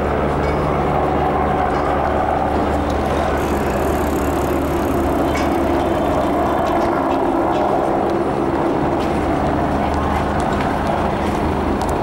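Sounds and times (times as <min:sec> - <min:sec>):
engine drone: 0:00.0 - 0:12.0.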